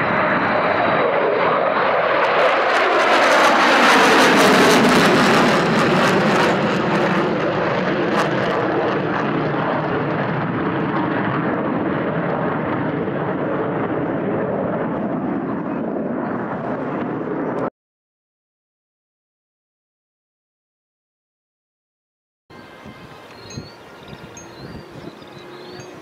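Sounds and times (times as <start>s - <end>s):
fighter jets flying past: 0.0s - 17.7s.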